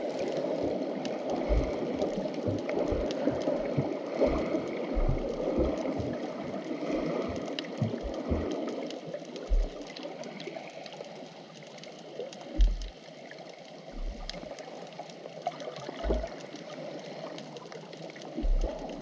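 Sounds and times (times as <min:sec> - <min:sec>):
faint crackling clicks: 0:00.0 - 0:19.0
underwater sea water rushing: 0:00.0 - 0:19.0
low underwater thuds: 0:01.3 - 0:08.7, 0:09.4 - 0:09.9, 0:12.6 - 0:13.0, 0:14.0 - 0:14.5, 0:16.0 - 0:16.4, 0:18.4 - 0:19.0.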